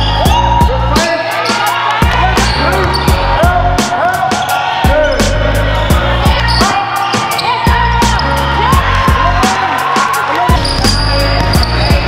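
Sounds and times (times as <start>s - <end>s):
bass line: 0.0s - 1.0s, 2.0s - 4.0s, 4.9s - 6.8s, 7.7s - 9.6s, 10.5s - 12.0s.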